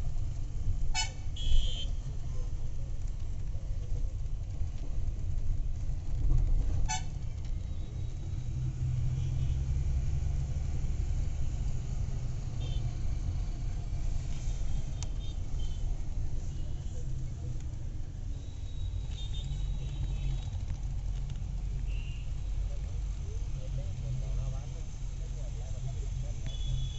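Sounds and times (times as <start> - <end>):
street traffic: 0.0 - 26.9
vehicle interior rumble: 0.0 - 26.9
car horn toot: 1.0 - 1.9.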